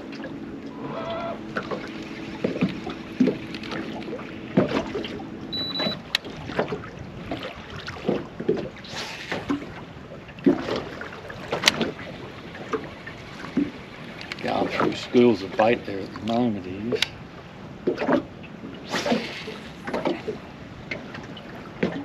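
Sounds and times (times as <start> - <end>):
low hum: 0.0 - 17.6
waves slapping against boat hull: 0.0 - 22.0
short high electronic beep: 5.5 - 6.0.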